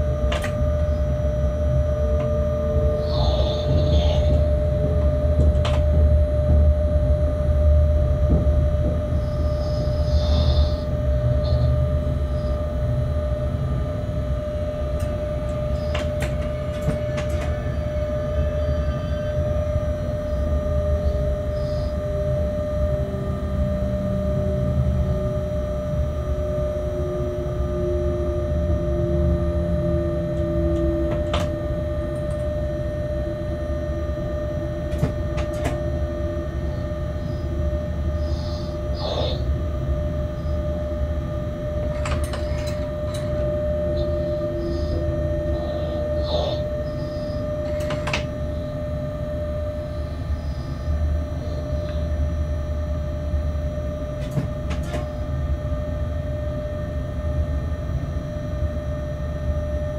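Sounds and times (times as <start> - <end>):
constant whine: 0.0 - 59.9
locomotive low rumble: 0.0 - 59.9.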